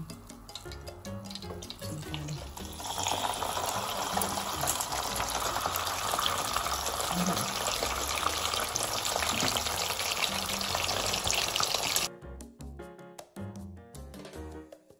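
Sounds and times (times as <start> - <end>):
background music with bass line: 0.0 - 5.8, 12.0 - 14.9
oil sizzling and bubbling: 0.0 - 12.1.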